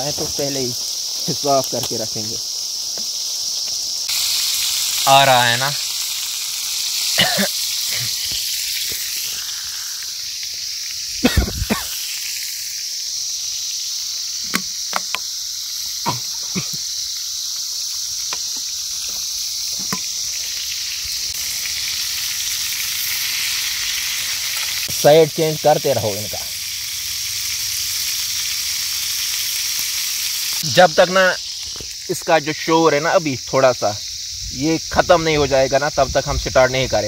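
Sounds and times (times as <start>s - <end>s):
chicken frying in hot oil: 0.0s - 37.0s.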